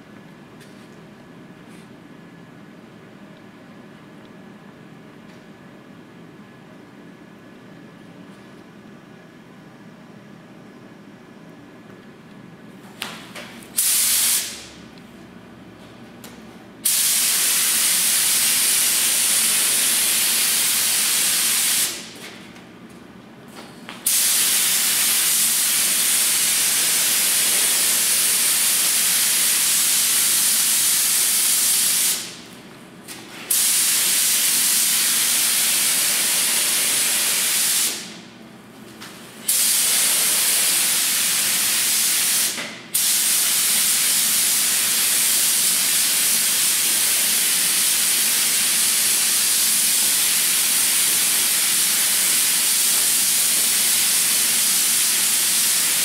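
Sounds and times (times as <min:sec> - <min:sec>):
spray gun hissing: 0:13.8 - 0:14.6, 0:16.8 - 0:22.0, 0:24.1 - 0:32.3, 0:33.5 - 0:38.1, 0:39.5 - 0:56.0.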